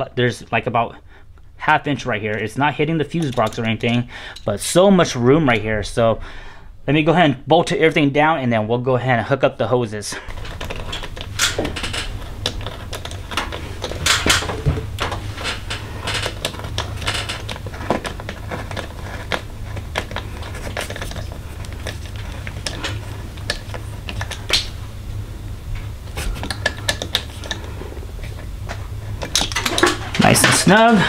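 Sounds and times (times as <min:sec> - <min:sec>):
hand tools tapping metal: 0:03.1 - 0:04.6, 0:25.8 - 0:31.0
low hum: 0:10.1 - 0:31.0.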